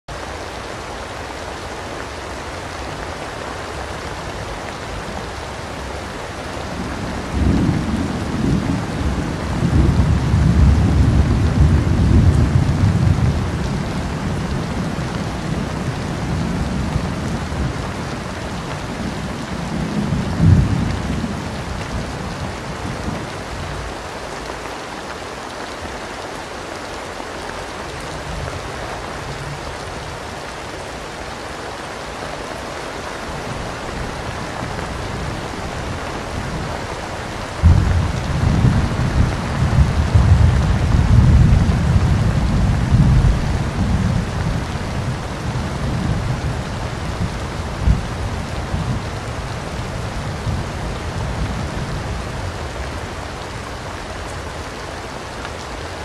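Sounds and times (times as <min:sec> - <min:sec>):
steady rain: 0:00.0 - 0:56.0
rolling thunder: 0:06.8 - 0:18.0, 0:33.5 - 0:49.4
sharp thunder clap: 0:37.6 - 0:41.6.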